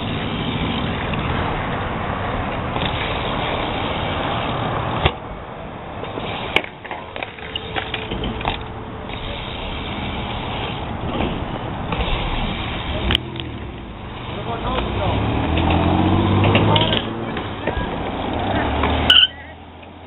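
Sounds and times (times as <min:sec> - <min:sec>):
bike tyres rolling on concrete: 0:00.0 - 0:20.0.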